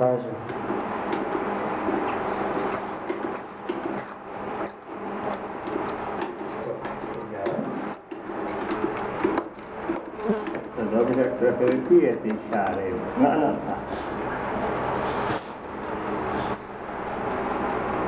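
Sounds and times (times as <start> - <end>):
calf sucking from a teat: 0.7 - 11.1.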